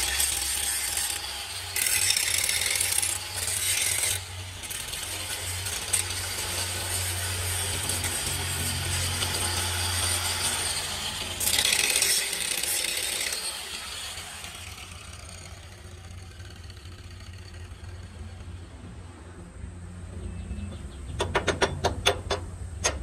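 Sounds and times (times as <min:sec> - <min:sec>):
angle grinder grinding steel: 0:00.0 - 0:18.9
low hum: 0:14.8 - 0:23.0.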